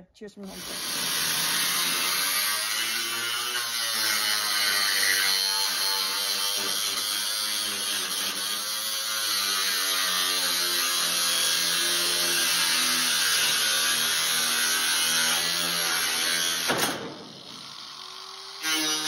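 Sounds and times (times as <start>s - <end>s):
power tool cutting metal sheet: 0.4s - 19.0s.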